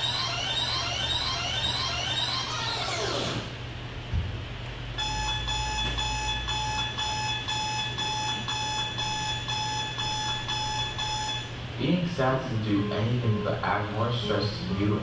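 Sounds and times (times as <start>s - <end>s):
digital alarm clock beeping: 0.0s - 3.2s, 5.0s - 11.5s.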